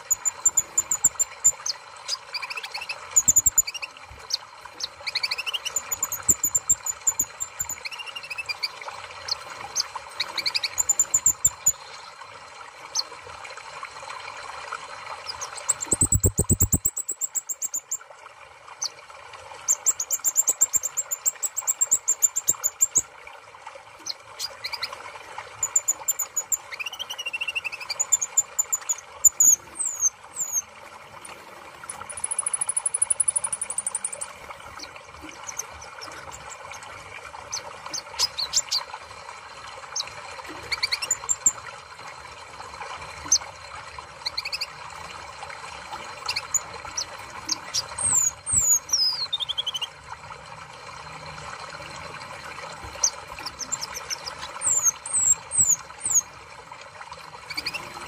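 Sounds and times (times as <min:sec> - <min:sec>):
bird chirps and whistles: 0:00.0 - 0:08.7, 0:10.2 - 0:11.8, 0:15.2 - 0:18.0, 0:25.6 - 0:30.6, 0:40.7 - 0:41.6, 0:47.7 - 0:49.9, 0:53.5 - 0:56.2, 0:57.5 - 0:57.9
bird trill: 0:00.0 - 0:09.4, 0:10.2 - 0:11.8, 0:15.2 - 0:18.0, 0:25.6 - 0:30.6, 0:46.3 - 0:49.9.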